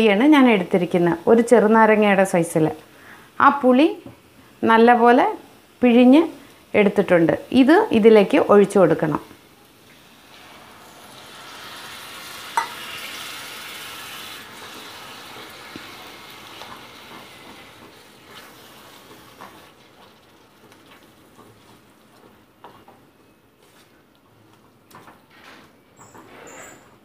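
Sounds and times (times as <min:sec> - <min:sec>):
liquid sizzling in hot oil: 0:03.1 - 0:22.2
spatula tapping and scraping pan: 0:12.6 - 0:12.8.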